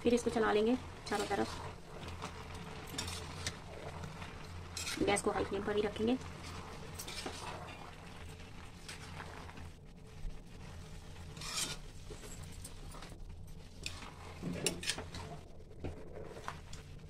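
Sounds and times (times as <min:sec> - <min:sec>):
metal spoon scraping steel pan: 0:01.1 - 0:03.6, 0:04.6 - 0:05.5, 0:06.4 - 0:08.0, 0:11.2 - 0:12.5, 0:13.8 - 0:15.4.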